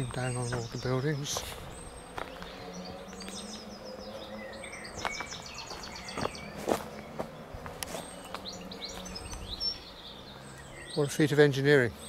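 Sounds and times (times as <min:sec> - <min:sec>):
woodland birds singing: 0:00.0 - 0:12.0.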